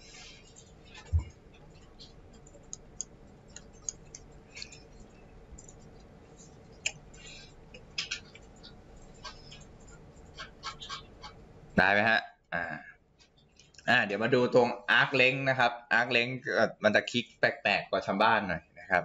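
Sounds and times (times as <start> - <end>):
faint steady hum: 0.0 - 19.0
computer mouse clicking: 1.8 - 4.9, 5.5 - 6.1.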